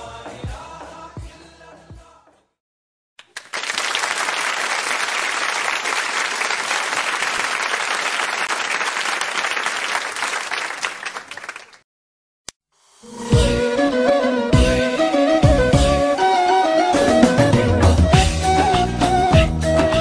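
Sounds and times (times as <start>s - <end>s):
crowd applauding: 3.2s - 11.8s.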